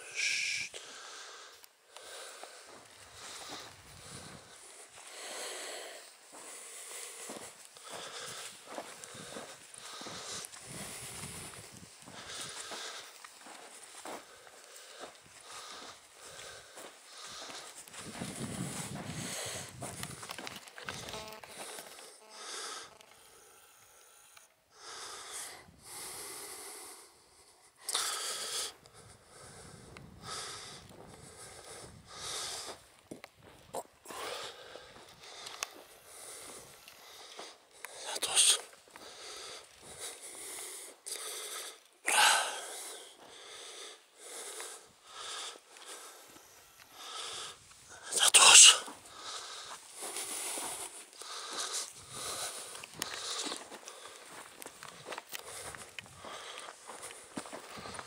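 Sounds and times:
heavy breathing: 0:00.0 - 0:58.0.

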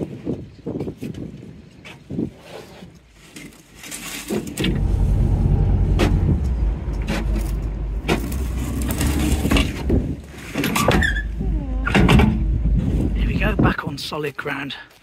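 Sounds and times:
knocks and clunks: 0:04.3 - 0:13.8
boat engine low rumble: 0:04.5 - 0:13.8.

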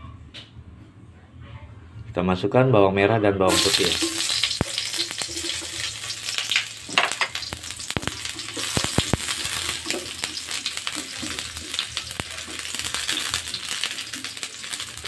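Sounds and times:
shallots and garlic sizzling in oil: 0:03.5 - 0:15.0.

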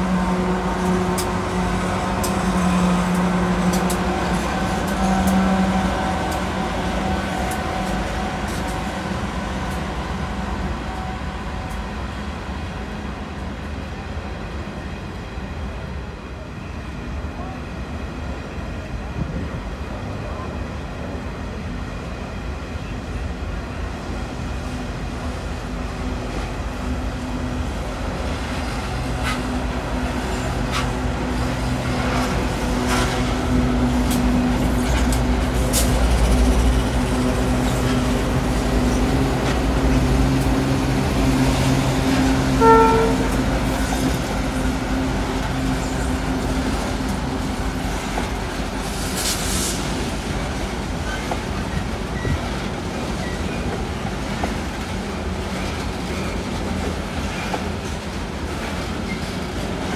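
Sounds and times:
train horn toot: 0:00.0 - 0:06.4, 0:42.1 - 0:44.0
diesel locomotive engines humming: 0:00.0 - 0:59.9
train wheels clicking over rails: 0:27.8 - 0:42.5, 0:43.2 - 0:59.9.

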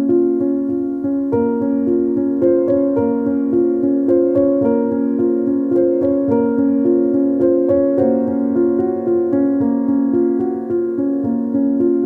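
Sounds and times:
keyboard melody with piano sound: 0:00.0 - 0:12.0.

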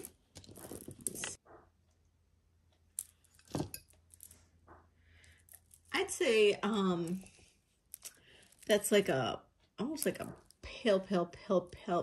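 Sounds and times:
necklace beads clicking: 0:02.8 - 0:04.4, 0:05.2 - 0:09.2.

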